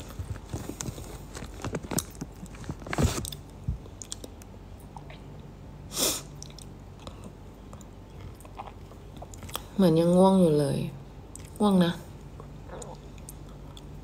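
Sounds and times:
person chewing crunchy food: 6.4 - 9.7.

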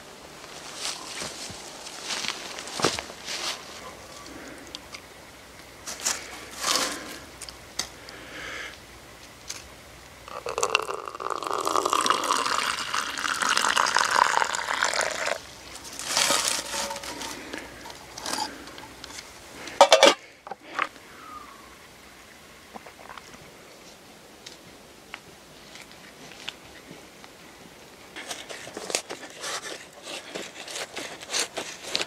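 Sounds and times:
handling noises: 0.3 - 7.9, 15.5 - 21.0
water pouring into a cup: 10.3 - 15.4
metal lid clinking on cup: 19.8 - 20.2.

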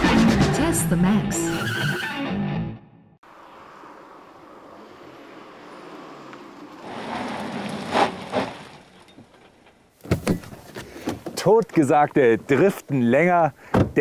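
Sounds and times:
car driving past at speed: 3.2 - 8.7.

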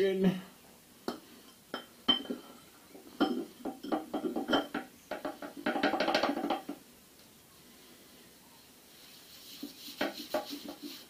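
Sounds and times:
metal clinks and knocks: 3.2 - 6.8.

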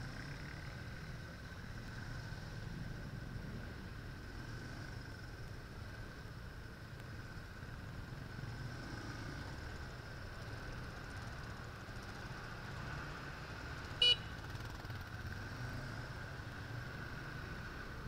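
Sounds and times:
short high-pitched beep: 14.0 - 14.3.

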